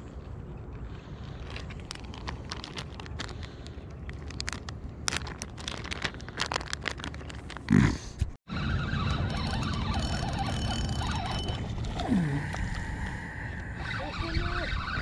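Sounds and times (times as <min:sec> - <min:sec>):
plastic package crinkling: 0:01.4 - 0:07.8.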